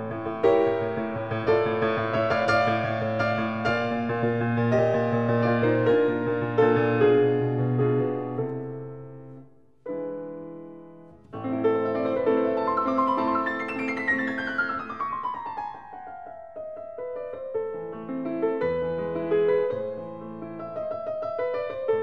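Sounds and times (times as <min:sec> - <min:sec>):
solo piano music: 0:00.0 - 0:22.0.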